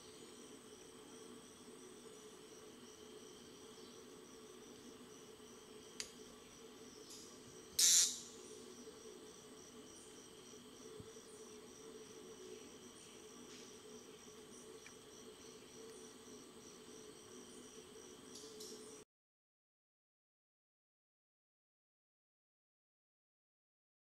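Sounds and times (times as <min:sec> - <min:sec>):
insect chorus trilling: 0:00.0 - 0:19.0.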